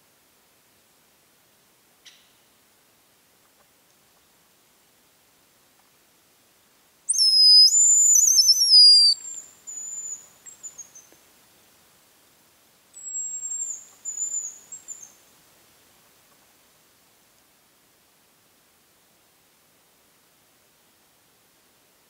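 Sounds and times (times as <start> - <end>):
high-pitched bird whistles: 7.1 - 10.2.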